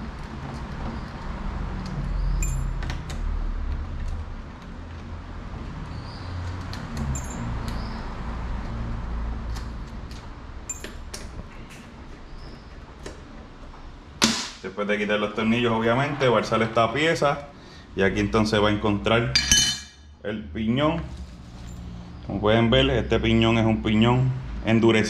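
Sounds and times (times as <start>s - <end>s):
small metal parts clinking: 2.4s - 2.8s, 10.6s - 11.0s, 19.4s - 20.0s.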